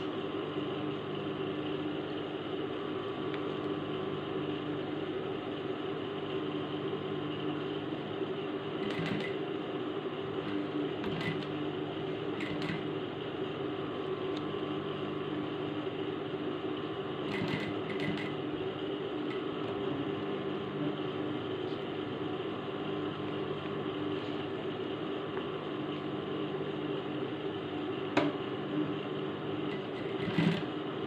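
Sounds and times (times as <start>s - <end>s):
sewing machine stitching: 8.8s - 9.5s, 10.4s - 11.6s, 12.3s - 13.0s, 17.2s - 18.4s, 29.6s - 30.8s.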